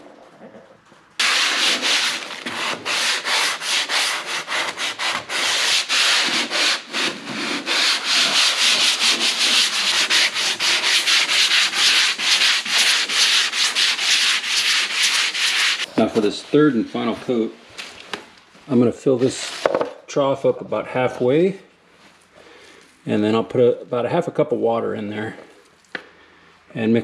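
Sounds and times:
sanding block on drywall: 1.2s - 15.9s.

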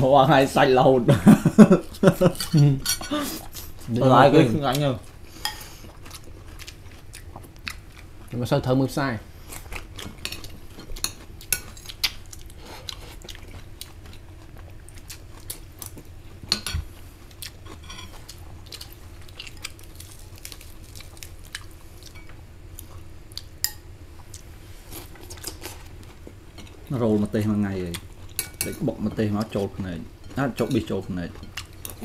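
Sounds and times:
faint steady hum: 0.0s - 32.0s
food clicks and crunches: 17.3s - 22.2s.

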